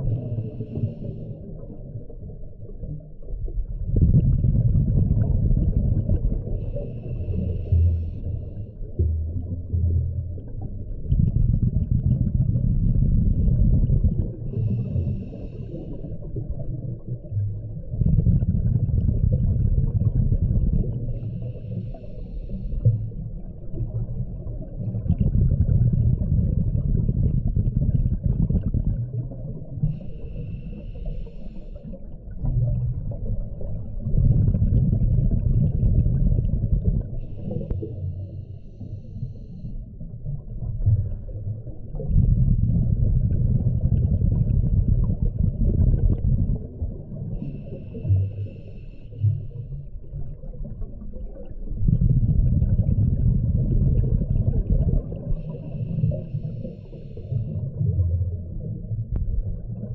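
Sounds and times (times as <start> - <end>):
exhaled bubbles gushing underwater: 0.0 - 59.9
regulator hiss on inhalation: 30.0 - 31.9, 47.4 - 49.5, 55.4 - 57.6.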